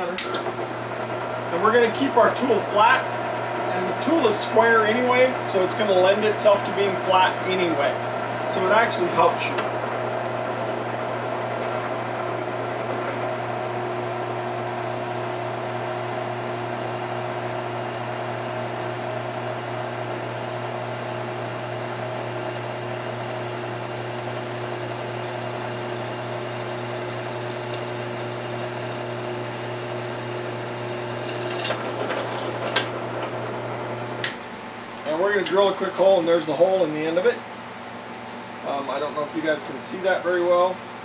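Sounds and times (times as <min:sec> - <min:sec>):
drill press drilling steel: 0:13.6 - 0:33.4.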